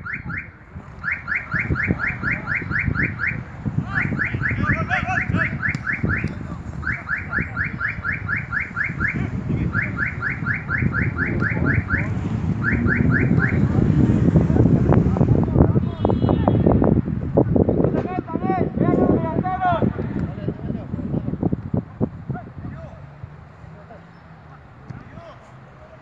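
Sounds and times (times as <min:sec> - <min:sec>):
car alarm rising chirps: 0:00.0 - 0:13.7.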